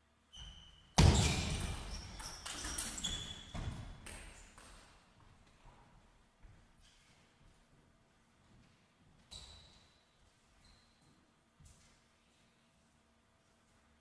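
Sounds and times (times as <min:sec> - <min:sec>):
clattering with squeaks: 0:01.3 - 0:03.6.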